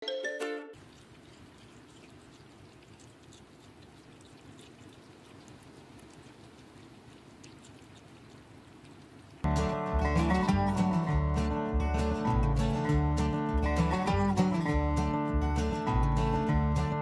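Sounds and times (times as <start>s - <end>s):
wet smacking of eating: 0.8s - 9.5s
small chewing clicks: 0.8s - 11.0s.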